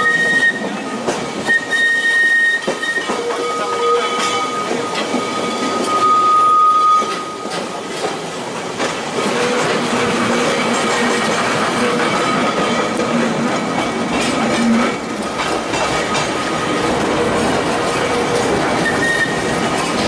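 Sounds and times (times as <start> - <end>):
tram wheels rumbling over rails: 0.0 - 20.0
high-pitched wheel squeal: 1.5 - 7.5, 18.8 - 19.5.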